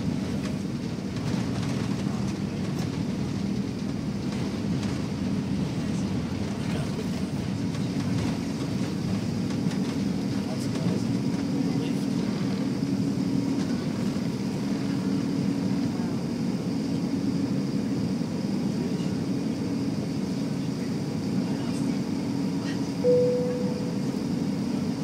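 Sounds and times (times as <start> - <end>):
airplane cabin engine rumble: 0.0 - 25.0
short single tone: 23.0 - 24.3.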